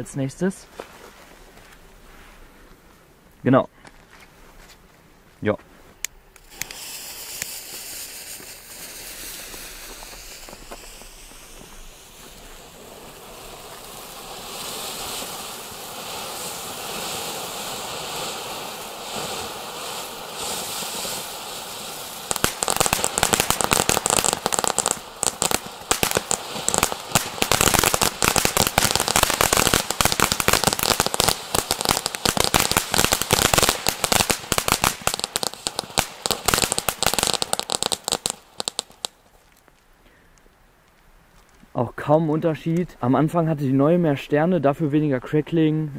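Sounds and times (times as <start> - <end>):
dense crackling pops: 5.9 - 43.2
hiss of spraying sparks: 6.4 - 39.2.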